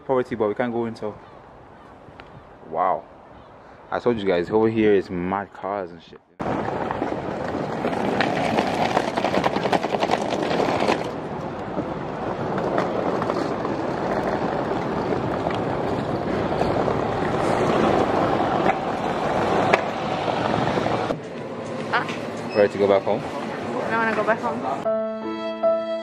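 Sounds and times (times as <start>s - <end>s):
traffic rushing: 6.4s - 24.9s.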